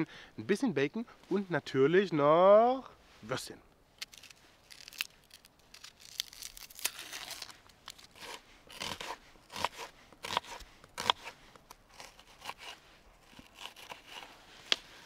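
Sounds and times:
knife scraping onion skin: 0:04.0 - 0:15.0
knife chopping on wooden board: 0:08.2 - 0:11.3.

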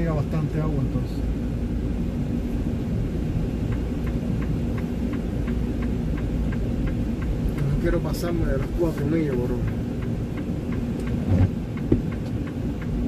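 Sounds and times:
diesel truck engine rumble: 0:00.0 - 0:13.0
steady hum: 0:00.0 - 0:13.0
light ticks: 0:03.7 - 0:13.0.

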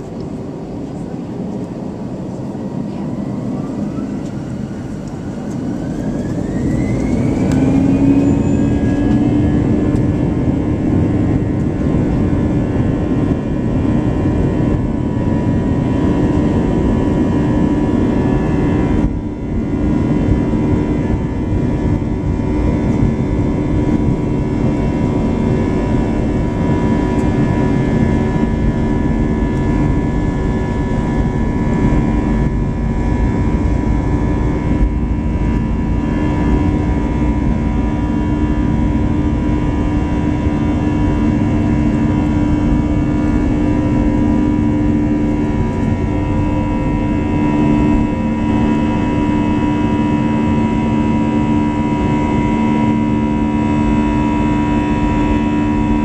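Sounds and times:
jet engines spooling up: 0:00.0 - 0:56.0.

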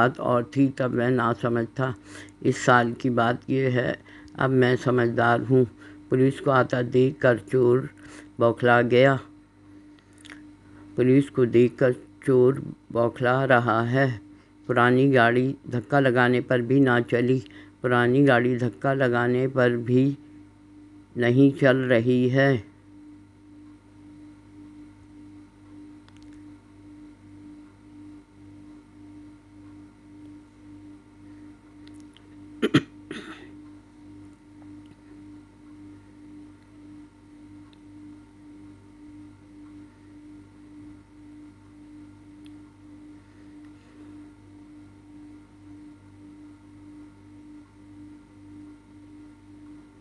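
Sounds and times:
electrical hum: 0:00.0 - 0:50.0
person clearing throat: 0:32.6 - 0:33.6.

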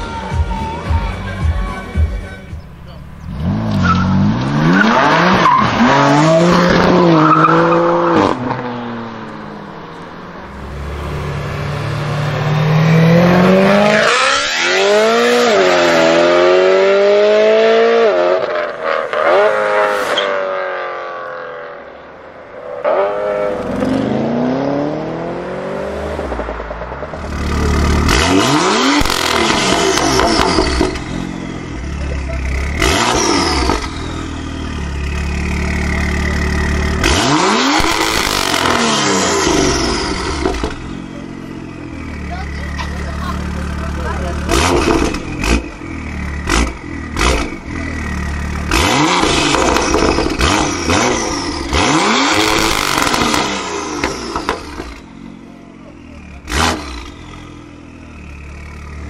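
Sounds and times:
sports car engines accelerating: 0:02.2 - 0:59.0.

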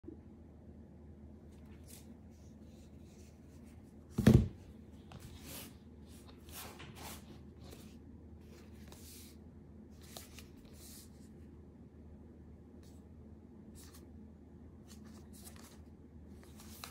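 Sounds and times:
cardboard box thump on desk: 0:04.2 - 0:04.6.

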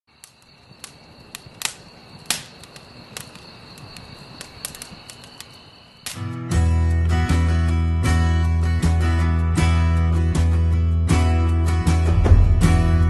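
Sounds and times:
campfire crackling and popping: 0:00.1 - 0:09.1
acoustic guitar music: 0:06.2 - 0:13.0.

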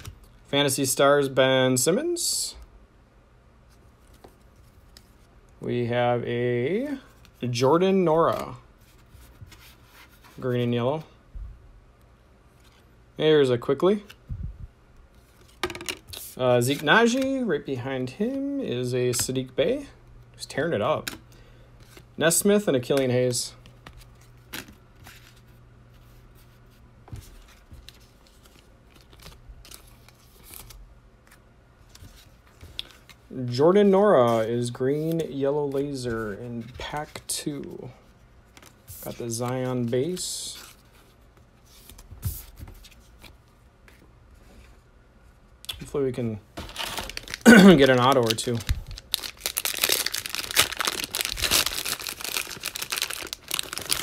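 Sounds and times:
low steady hum: 0:00.0 - 0:54.0
cards clicking and rustling: 0:15.3 - 0:17.4, 0:27.2 - 0:33.2, 0:46.6 - 0:54.0
plastic wrapper crinkling: 0:46.6 - 0:54.0.

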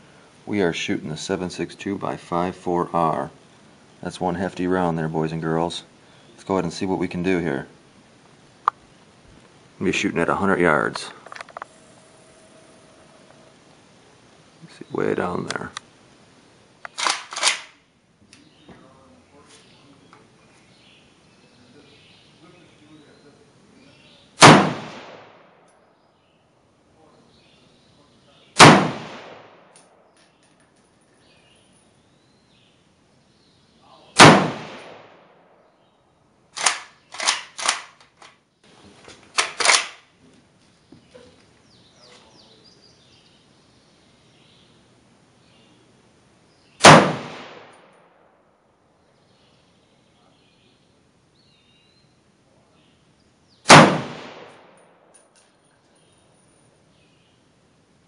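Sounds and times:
rifle shots: 0:16.9 - 0:17.8, 0:24.4 - 0:25.7, 0:28.6 - 0:30.0, 0:34.2 - 0:35.6, 0:36.6 - 0:38.0, 0:39.4 - 0:40.0, 0:46.8 - 0:48.2, 0:53.7 - 0:55.0.

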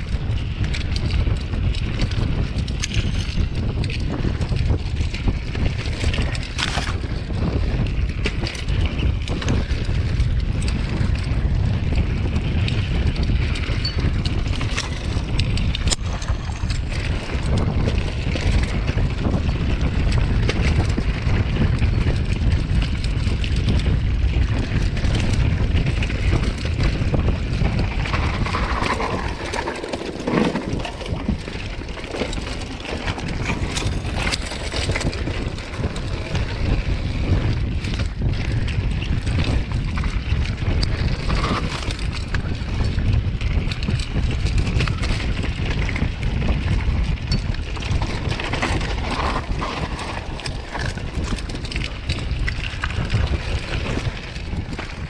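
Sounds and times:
bike rattling: 0:00.0 - 0:55.0
wind buffeting microphone: 0:00.0 - 0:55.0
tyres crunching over stones: 0:27.5 - 0:36.6.

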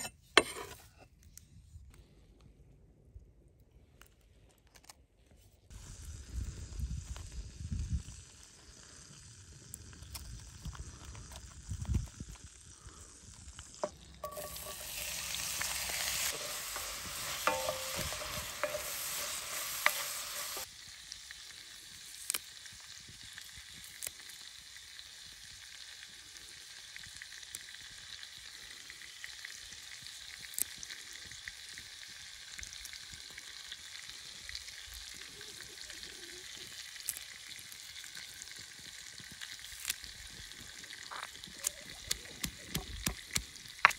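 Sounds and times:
frying hiss: 0:05.7 - 0:43.9
sharp crackles and ticks: 0:06.9 - 0:24.6, 0:36.6 - 0:43.9.

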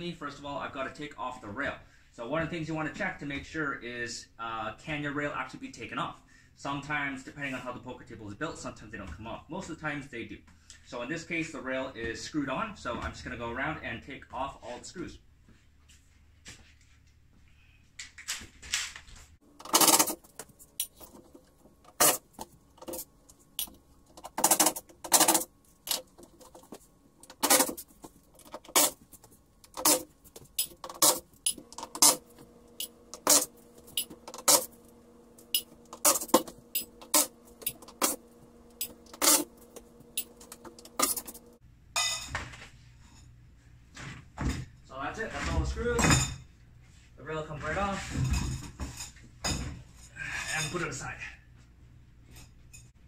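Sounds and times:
steady low hum: 0:19.4 - 0:41.9
metallic clicks and clinks: 0:19.7 - 0:21.2.

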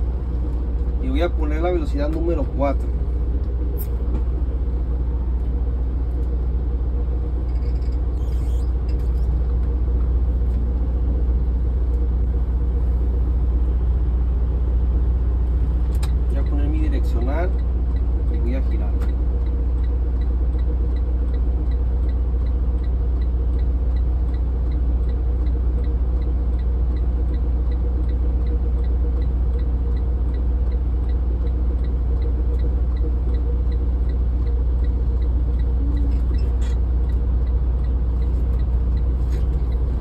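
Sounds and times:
diesel engine drone: 0:00.0 - 0:40.0
turn signal ticking: 0:15.8 - 0:40.0.

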